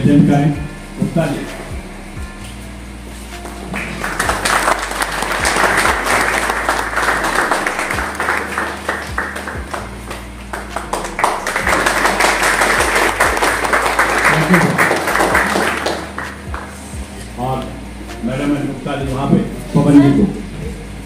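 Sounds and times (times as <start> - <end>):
people applauding: 3.7 - 16.8.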